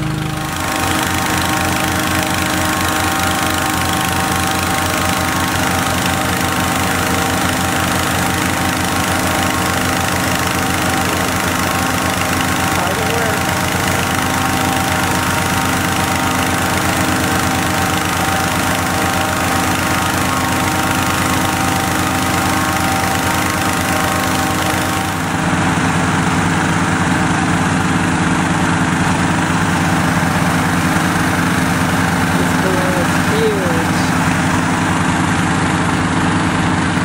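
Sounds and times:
engine inflator fan running: 0:00.0 - 0:37.0.

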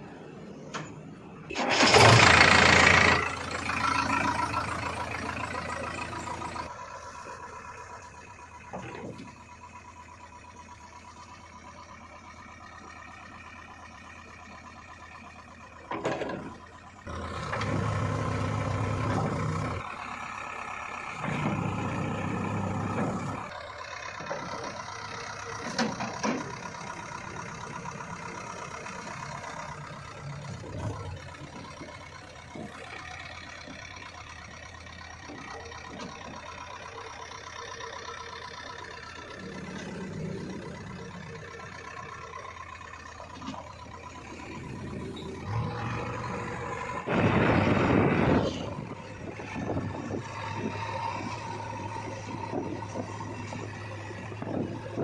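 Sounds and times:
diesel engine revving: 0:00.0 - 0:55.0.

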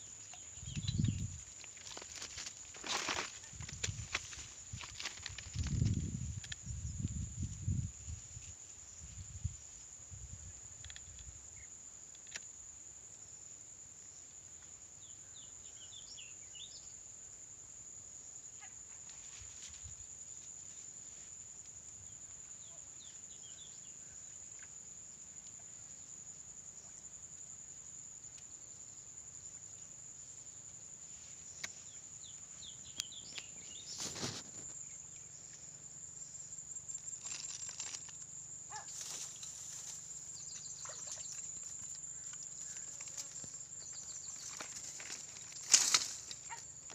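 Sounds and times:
high insect drone: 0:00.0 - 0:46.9
reeds rustling: 0:01.1 - 0:06.6, 0:37.0 - 0:46.7.

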